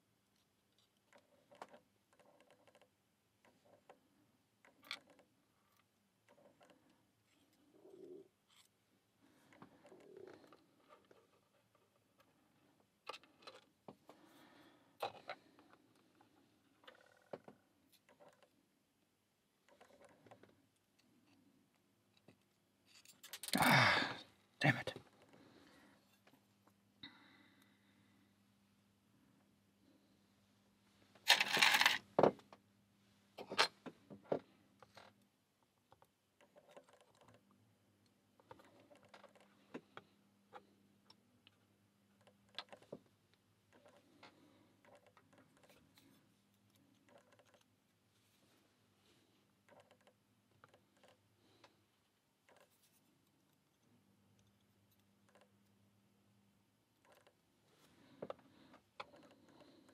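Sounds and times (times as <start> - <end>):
small metal lock parts clicking: 22.1 - 23.6.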